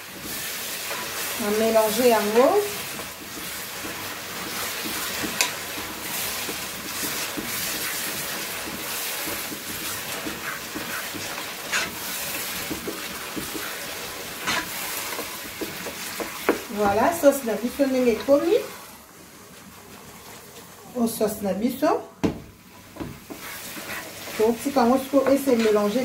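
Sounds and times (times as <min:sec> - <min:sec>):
sauce sizzling in a pot: 0:00.0 - 0:26.0
wooden spoon scraping a pot: 0:00.1 - 0:18.8, 0:22.9 - 0:26.0
spoon knocking on pot: 0:15.5 - 0:17.0.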